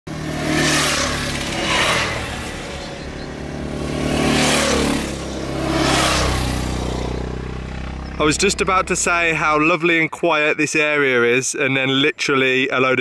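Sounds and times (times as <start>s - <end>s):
dirt bikes riding past: 0.1s - 9.8s.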